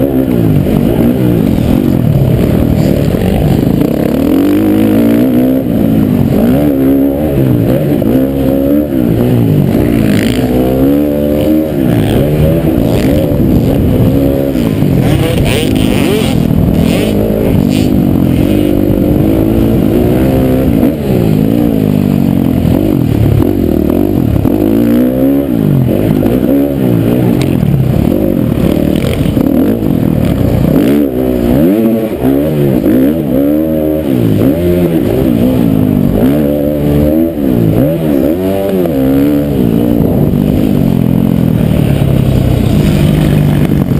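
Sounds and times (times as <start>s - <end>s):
dirt bike engine revving: 0.0s - 43.9s.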